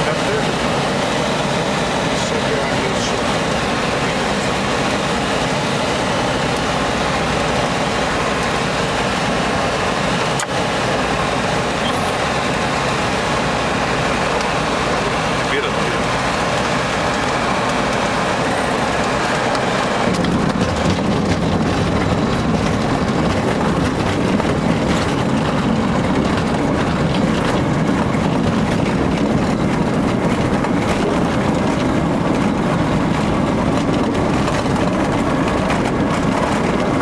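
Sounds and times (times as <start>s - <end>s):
light aircraft engine droning: 0.0s - 37.0s.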